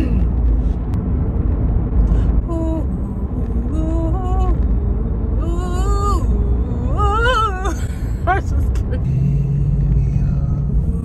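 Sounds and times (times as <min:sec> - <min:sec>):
car cabin rumble: 0:00.0 - 0:11.0
woman singing: 0:02.4 - 0:11.0.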